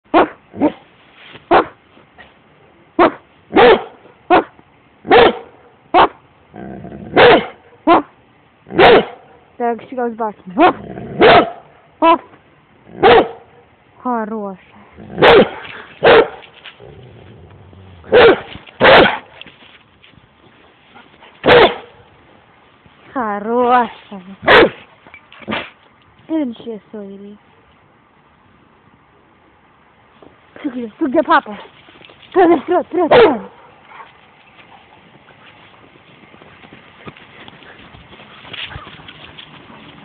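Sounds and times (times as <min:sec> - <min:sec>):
dog barking: 0:00.1 - 0:00.8, 0:01.5 - 0:01.8, 0:03.0 - 0:04.5, 0:05.1 - 0:06.2, 0:07.2 - 0:08.1, 0:08.8 - 0:09.3, 0:10.6 - 0:11.7, 0:13.0 - 0:13.4, 0:15.2 - 0:16.4, 0:18.1 - 0:19.3, 0:21.4 - 0:22.0, 0:24.4 - 0:24.8, 0:33.1 - 0:34.1.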